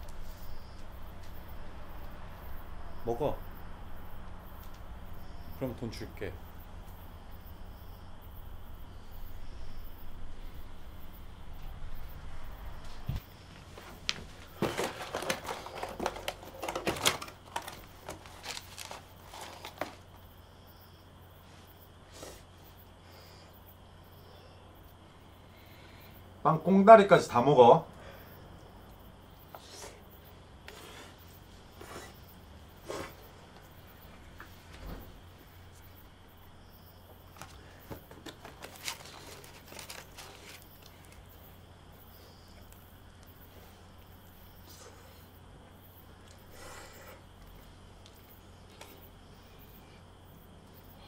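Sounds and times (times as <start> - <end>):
low steady hum: 0.0 - 51.0
food rustling and crinkling: 12.8 - 20.2, 37.3 - 41.4.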